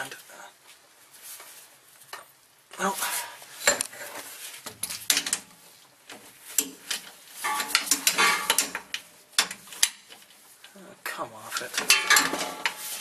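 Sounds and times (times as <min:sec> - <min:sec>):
wrench clinking and scraping on metal: 0:06.5 - 0:10.4, 0:11.5 - 0:13.0.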